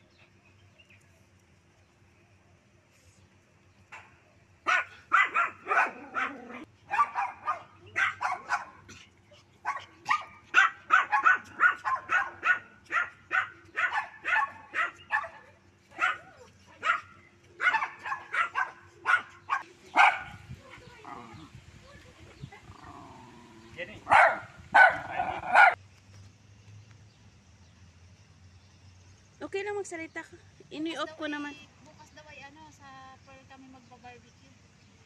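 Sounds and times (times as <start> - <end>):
small dogs barking: 4.6 - 21.5, 22.6 - 25.8.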